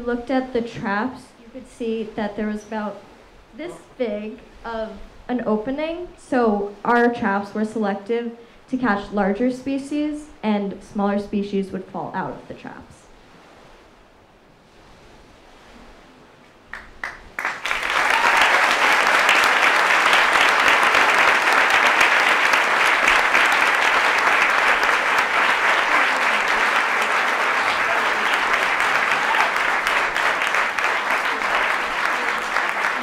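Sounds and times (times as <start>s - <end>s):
audience applauding: 16.7s - 33.0s.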